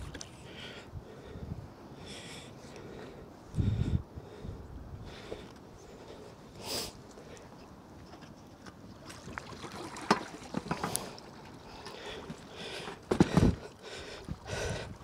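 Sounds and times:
bike knocking and rattling: 10.0s - 11.2s, 12.0s - 14.0s
heavy thumps: 13.1s - 13.6s.

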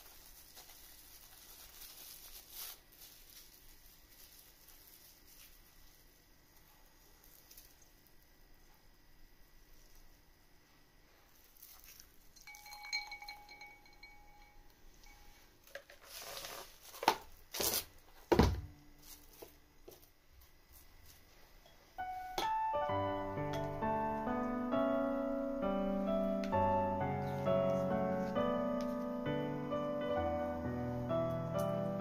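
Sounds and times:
cling wrap crinkling: 0.0s - 8.3s, 11.1s - 14.1s, 15.1s - 18.2s, 19.0s - 21.2s
gentle piano music: 22.0s - 32.0s.

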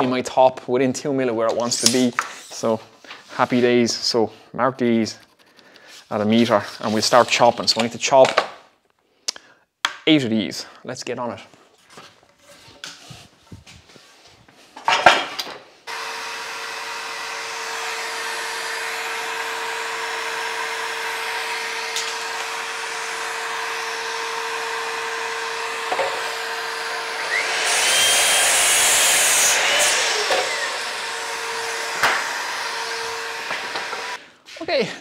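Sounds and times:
dust extraction vacuum hum: 15.9s - 34.2s
mitre saw cutting wood: 15.9s - 34.2s.

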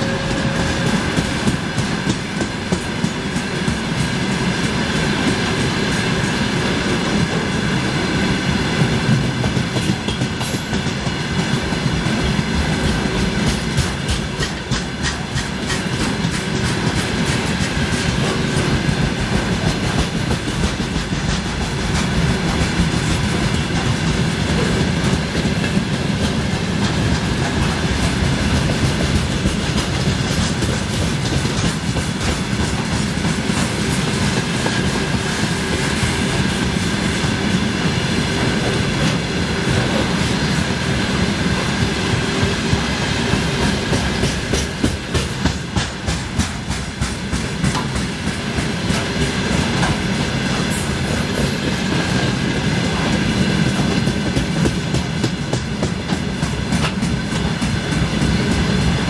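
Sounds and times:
train wheels clattering over rail joints: 0.0s - 7.8s, 8.5s - 59.0s.

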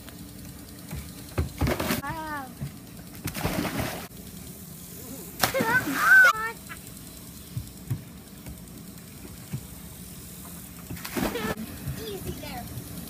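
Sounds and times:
child shouting: 5.9s - 6.6s.

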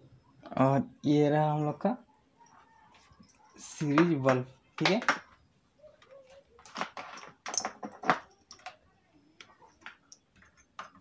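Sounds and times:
parts clicking on a workbench: 6.6s - 8.8s.

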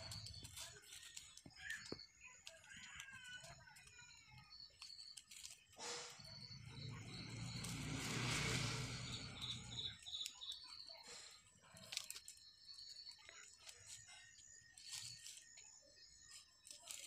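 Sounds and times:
plastic strands rustling: 0.0s - 10.6s, 11.2s - 17.0s
bird chirping: 0.0s - 11.4s, 12.0s - 16.7s.

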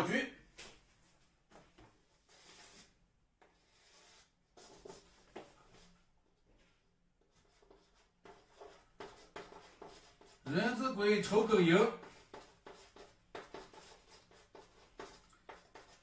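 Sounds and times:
chalk scraping on blackboard: 2.2s - 5.9s, 7.3s - 16.0s.

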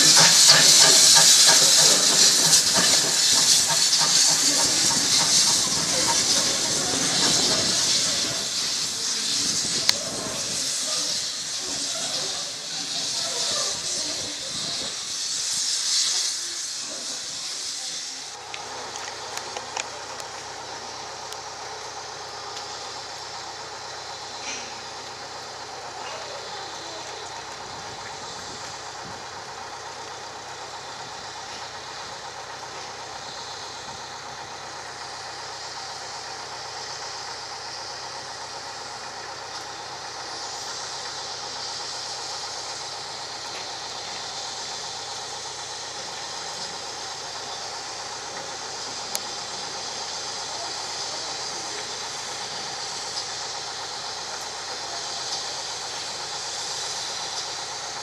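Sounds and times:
steam locomotive hissing steam: 0.0s - 58.0s.

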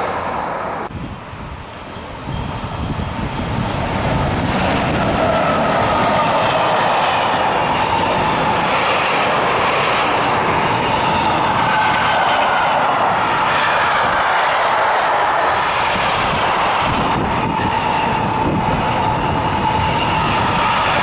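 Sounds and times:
train wheels rolling on rails: 0.0s - 21.0s.

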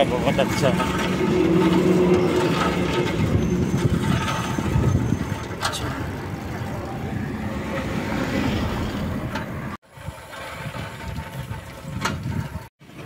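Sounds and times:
bicycle rumbling over bricks: 0.0s - 13.0s.

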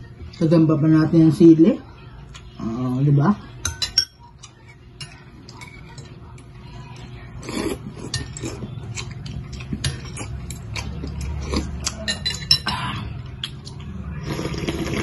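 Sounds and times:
noodles and soup slurping: 14.2s - 15.0s.

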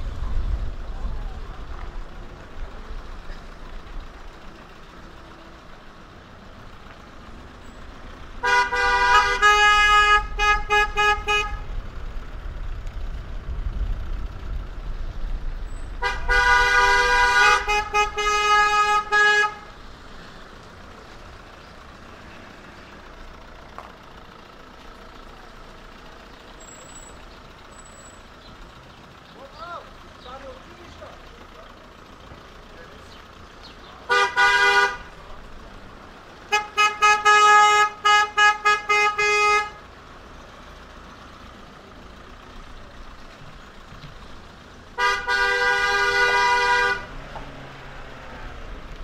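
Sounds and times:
vehicle horn toots: 8.4s - 11.7s, 16.0s - 19.8s, 34.1s - 35.2s, 36.5s - 39.8s, 44.9s - 47.2s.

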